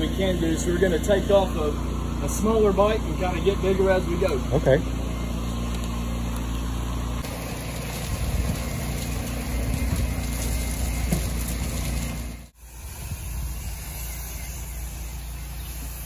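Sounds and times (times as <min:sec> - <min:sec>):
engine droning: 0:00.0 - 0:16.0
hose spray hiss: 0:07.2 - 0:16.0.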